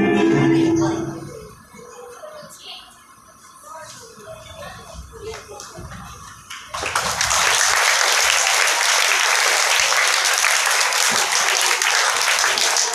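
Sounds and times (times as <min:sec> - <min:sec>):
children applauding: 0:06.4 - 0:12.9.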